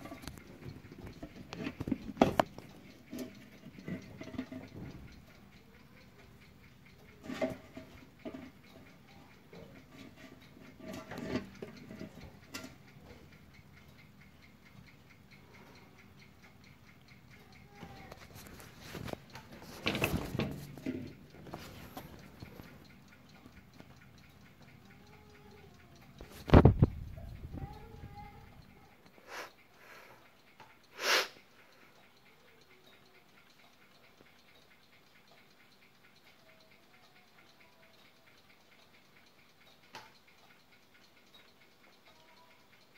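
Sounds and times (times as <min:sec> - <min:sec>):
clock ticking quickly: 0:00.0 - 0:42.9
noisy breath close to microphone: 0:29.2 - 0:30.3, 0:30.9 - 0:32.0.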